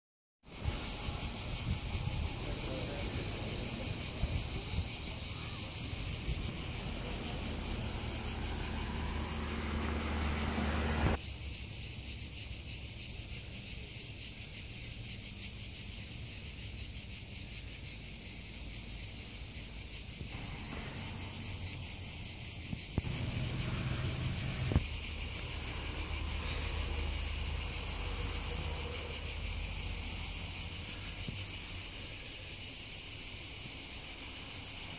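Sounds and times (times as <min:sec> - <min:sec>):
cicadas buzzing: 0:00.4 - 0:34.9
low rumble: 0:23.0 - 0:24.8.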